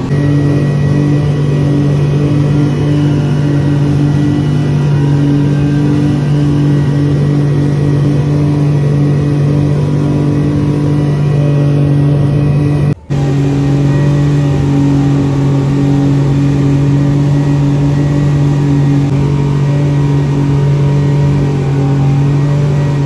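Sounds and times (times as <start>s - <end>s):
rush of boat wake: 0.0s - 23.0s
speedboat engines droning: 0.0s - 23.0s.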